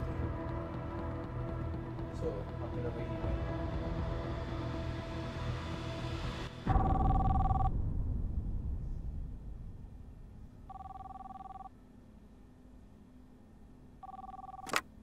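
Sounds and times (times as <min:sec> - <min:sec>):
low rumble: 0:00.0 - 0:11.0
telephone two-tone ring: 0:06.8 - 0:07.7, 0:10.7 - 0:11.7, 0:14.0 - 0:14.8.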